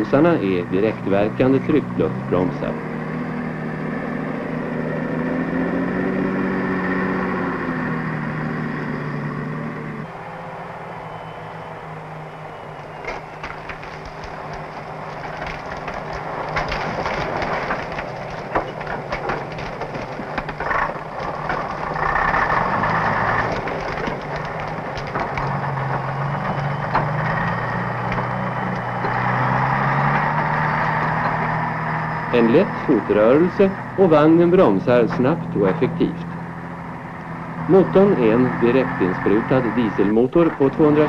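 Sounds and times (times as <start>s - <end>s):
diesel truck engine under load: 0.0s - 41.0s
branches cracking and snapping: 12.9s - 31.6s.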